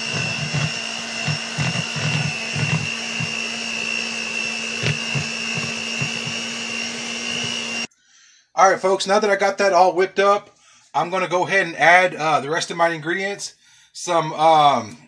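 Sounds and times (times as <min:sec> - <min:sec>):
electric hand mixer whining: 0:00.0 - 0:07.9.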